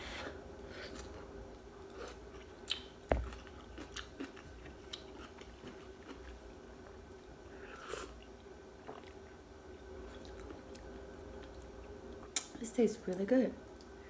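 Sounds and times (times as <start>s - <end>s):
person chewing: 0.7s - 6.5s, 7.6s - 12.5s.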